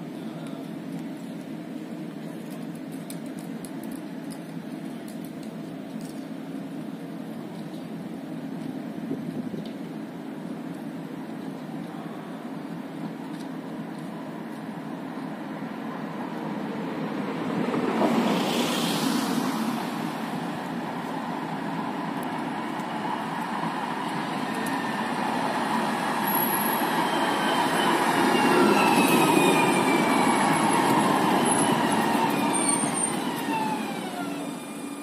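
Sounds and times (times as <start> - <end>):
tram braking: 11.9 - 35.0
wheels rolling on rails: 19.3 - 35.0
electric motor whine: 26.3 - 35.0.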